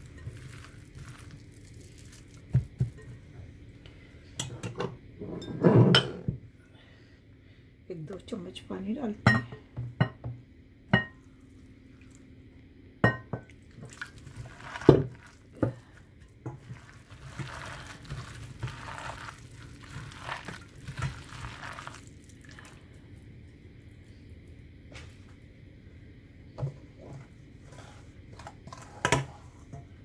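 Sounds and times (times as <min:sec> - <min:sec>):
hand squishing wet batter: 0:00.0 - 0:03.0, 0:13.6 - 0:23.3.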